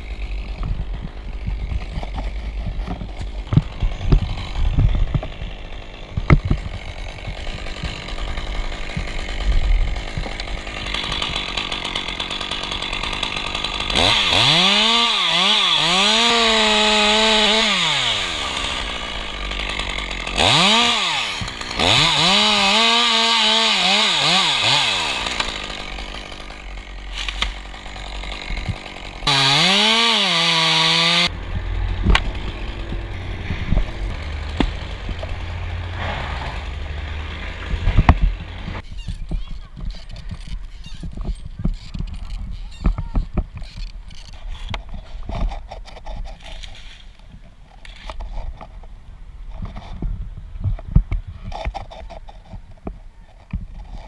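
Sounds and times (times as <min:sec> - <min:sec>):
chainsaw idling: 0:00.0 - 0:38.8
chainsaw revving while cutting wood: 0:00.0 - 0:38.8.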